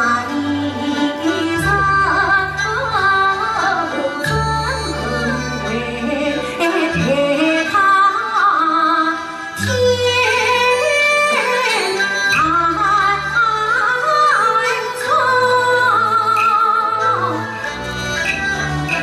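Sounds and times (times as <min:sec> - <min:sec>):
woman singing opera: 0:00.0 - 0:17.4
instrumental accompaniment: 0:00.0 - 0:19.0.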